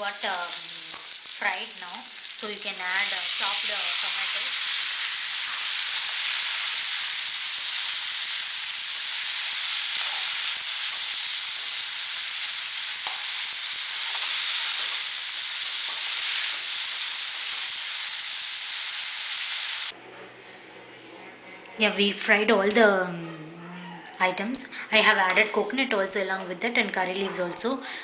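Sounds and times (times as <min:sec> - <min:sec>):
tomatoes sizzling in oil: 0:00.0 - 0:20.0.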